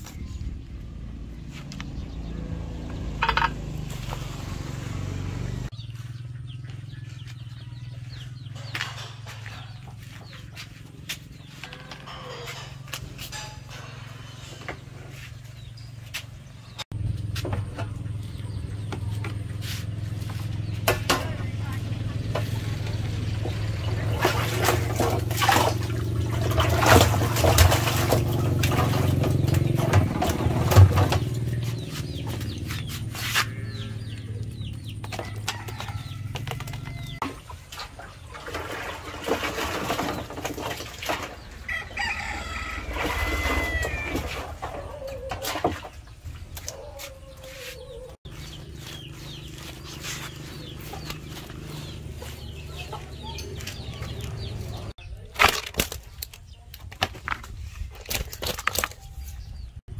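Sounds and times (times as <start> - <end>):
chickens clucking: 5.9 - 16.8, 17.5 - 55.3
rooster crowing: 35.2 - 37.2, 41.6 - 45.2.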